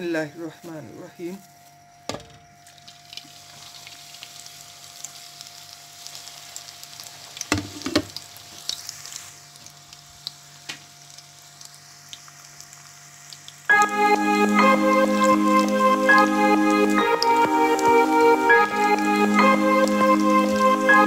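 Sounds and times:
deep-frying sizzle with pops: 0:02.0 - 0:21.0
knocks in a pot: 0:02.1 - 0:02.4.

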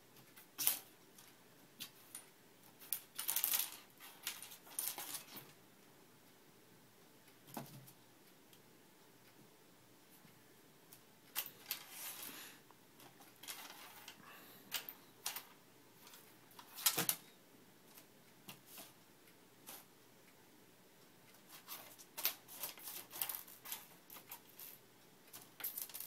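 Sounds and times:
small items rattling in drawer: 0:25.4 - 0:26.0.

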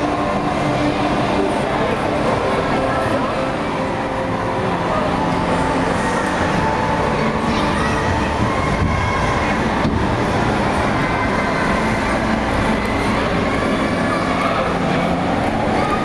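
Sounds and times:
indoor ice rink rumbling: 0:00.0 - 0:16.0.

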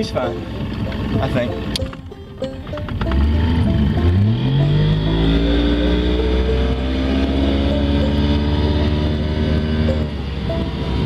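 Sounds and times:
outboard motor accelerating: 0:00.0 - 0:11.0.

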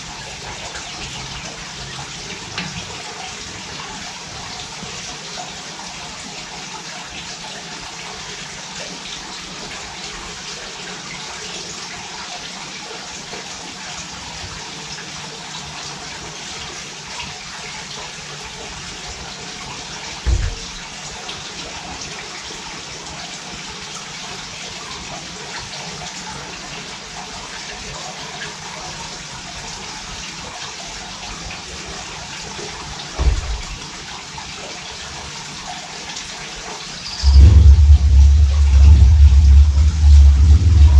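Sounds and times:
dull low thumps: 0:20.3 - 0:20.7, 0:37.2 - 0:40.9
steady rushing noise: 0:37.1 - 0:40.9.

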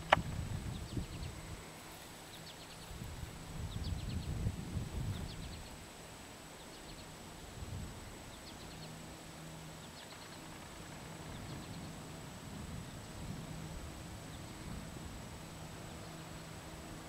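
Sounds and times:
songbird chirping: 0:00.0 - 0:07.2, 0:08.2 - 0:12.1
distant airplane engine drone: 0:00.0 - 0:17.0.

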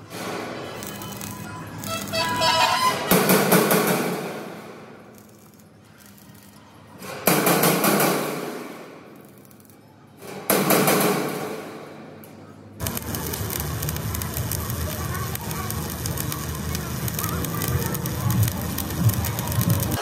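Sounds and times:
arc welding crackle and hiss: 0:00.0 - 0:06.7, 0:07.9 - 0:09.8, 0:12.8 - 0:20.0.

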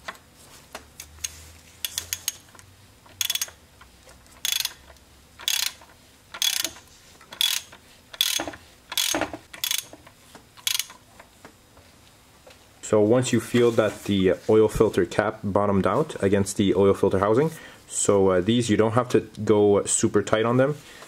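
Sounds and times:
ratchet pawl clicks: 0:01.2 - 0:03.6, 0:04.4 - 0:10.0, 0:10.6 - 0:11.0.

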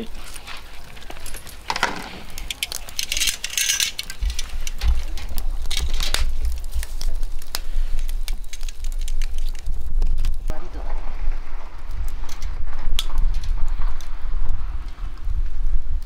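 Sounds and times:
wind rumble on microphone: 0:00.0 - 0:16.0
tongs clinking on grill grate: 0:00.8 - 0:04.6.

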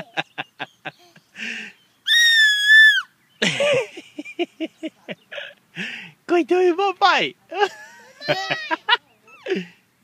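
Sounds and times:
baby squealing: 0:02.1 - 0:03.1
baby giggling: 0:08.0 - 0:09.6.

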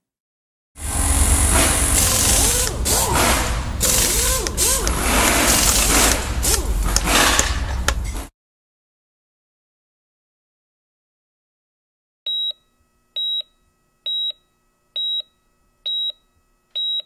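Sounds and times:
power tools running: 0:00.8 - 0:08.0.

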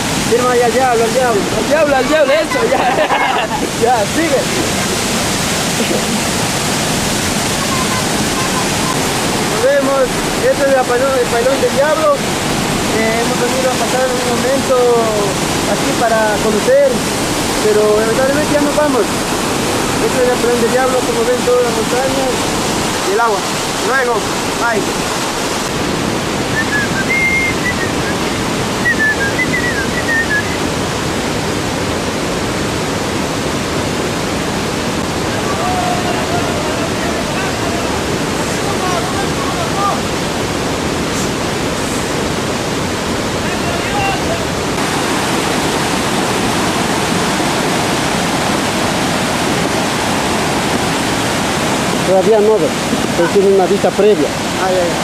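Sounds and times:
waterfall rushing: 0:00.0 - 0:55.0.

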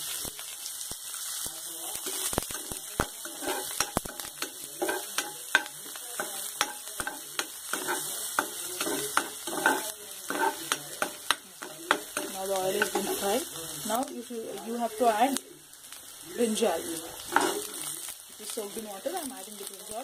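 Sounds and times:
onions sizzling in oil: 0:00.0 - 0:20.0
metal spoon scraping a pan: 0:02.0 - 0:13.5, 0:17.2 - 0:17.9.

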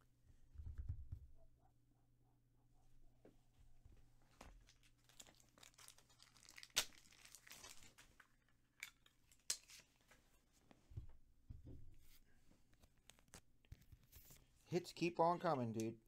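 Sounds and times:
wrapper tearing and crinkling: 0:04.7 - 0:08.3.

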